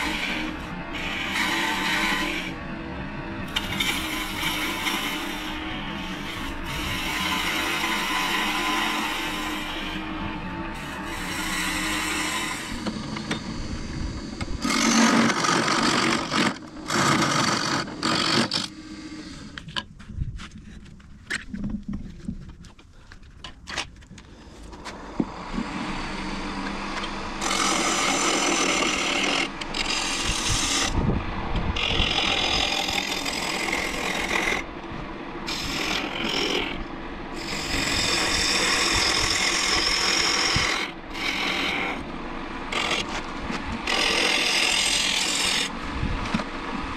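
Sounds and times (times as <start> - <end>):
gouge scraping wood on lathe: 0.0 - 2.6, 3.5 - 13.6, 14.2 - 18.8, 25.3 - 31.0, 31.8 - 34.7, 35.5 - 42.1, 42.7 - 45.8.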